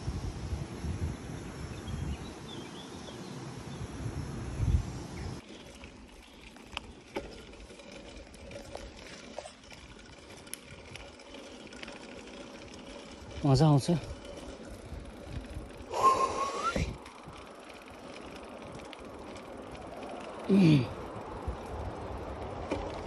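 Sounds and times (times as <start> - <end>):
wind on microphone: 0.0 - 2.9, 3.6 - 5.4, 13.2 - 17.5
bike tyres crunching on gravel: 5.2 - 23.0
small clicks and ticks: 5.4 - 15.9, 17.0 - 20.5.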